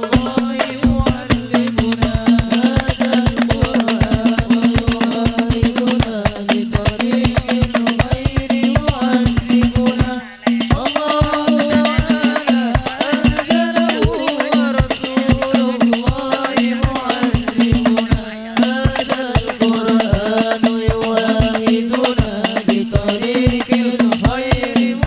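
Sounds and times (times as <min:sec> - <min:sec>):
frame drum ensemble with tambourines: 0:00.0 - 0:25.0
wavering melody line: 0:00.3 - 0:03.5.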